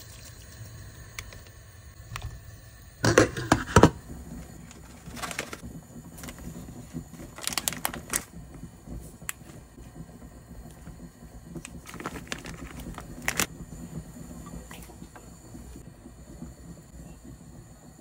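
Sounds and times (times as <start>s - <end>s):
plastic bag crinkling: 4.7s - 5.6s, 7.1s - 8.4s, 11.8s - 13.5s.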